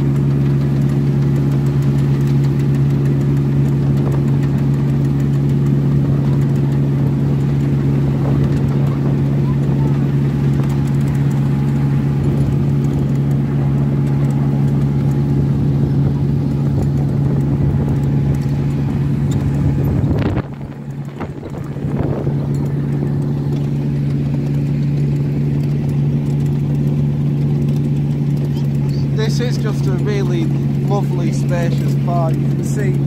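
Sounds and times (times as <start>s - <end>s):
miniature locomotive engine running: 20.8s - 33.0s.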